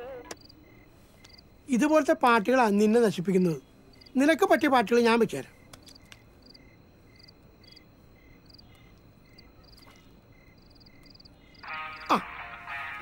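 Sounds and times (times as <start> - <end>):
crickets chirping: 0.0 - 13.0
song playing from a phone: 11.6 - 13.0.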